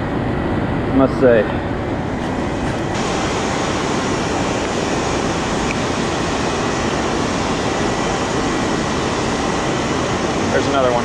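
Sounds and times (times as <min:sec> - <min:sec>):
water roaring over spillway: 0:02.2 - 0:11.0.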